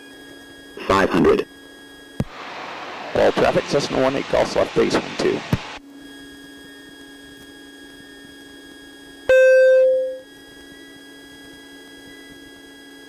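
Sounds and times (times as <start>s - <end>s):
steady low cockpit hum: 0.0s - 11.0s
loud beep tone: 9.3s - 10.2s.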